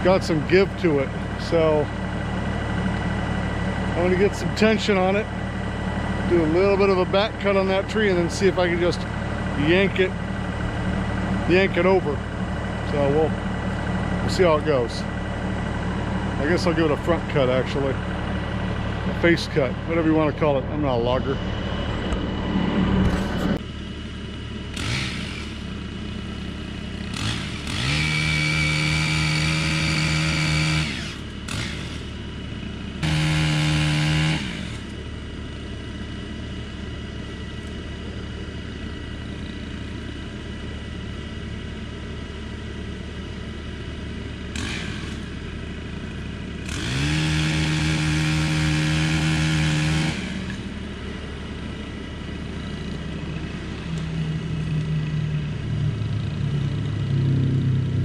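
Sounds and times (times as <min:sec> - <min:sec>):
chainsaw revving high whine: 0:00.0 - 0:20.9, 0:24.4 - 0:35.2, 0:44.5 - 0:58.0
low engine idling: 0:00.0 - 0:58.0.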